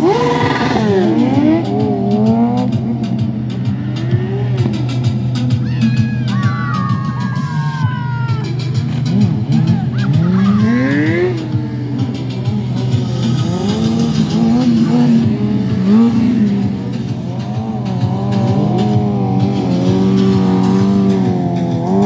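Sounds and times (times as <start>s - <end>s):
motorcycle engine revving: 0.0s - 5.7s, 8.5s - 22.0s.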